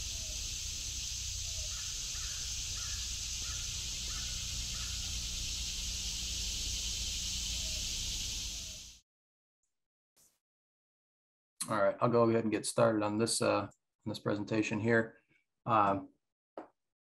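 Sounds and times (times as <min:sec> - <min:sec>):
bird downward call: 0:00.0 - 0:09.0
high bird chirps: 0:00.0 - 0:09.0
high-pitched insect chorus: 0:00.0 - 0:09.0.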